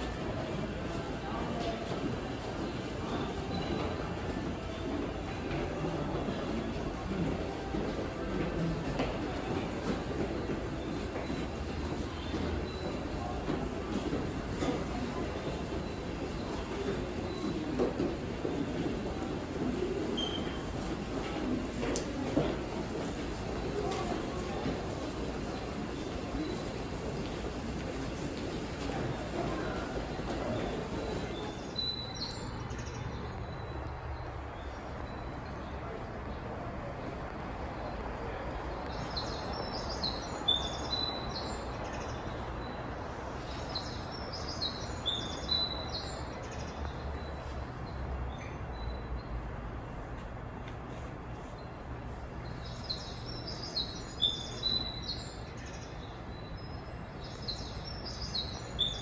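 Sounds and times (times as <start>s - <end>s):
railway station hum and rumble: 0.0s - 59.0s.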